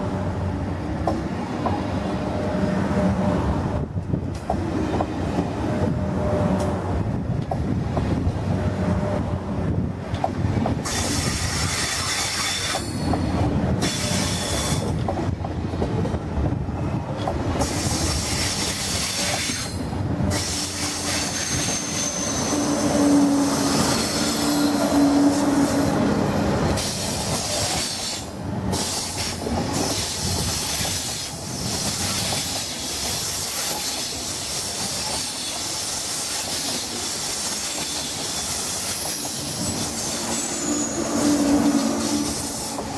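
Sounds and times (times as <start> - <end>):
train wheels rumbling on rail: 0.0 - 42.9
high wheel squeal: 10.9 - 13.2, 13.8 - 14.9, 17.7 - 26.1, 37.5 - 42.8.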